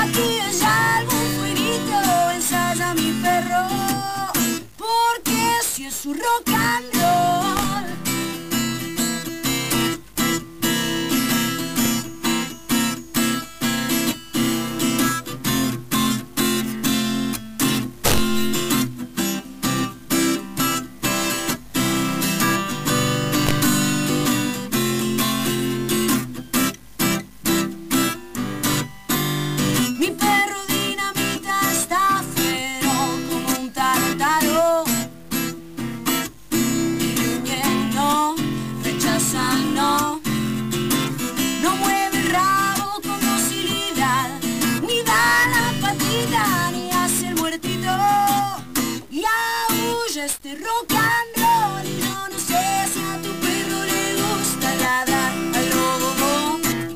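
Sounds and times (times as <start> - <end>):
woman singing: 0.0 - 8.3, 29.8 - 35.1, 36.8 - 40.6, 41.4 - 56.9
acoustic guitar strumming: 0.0 - 56.9.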